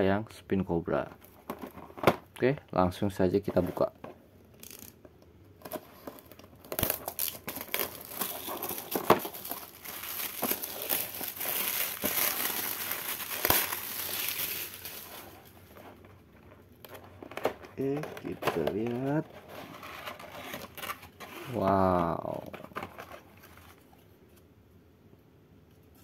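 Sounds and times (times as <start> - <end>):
plastic wrapping crinkling and tearing: 5.6 - 24.0.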